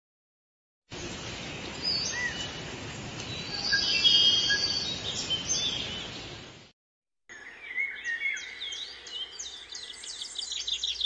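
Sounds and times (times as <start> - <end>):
birds chirping and whistling: 1.0 - 2.6, 3.2 - 6.5, 7.3 - 11.0.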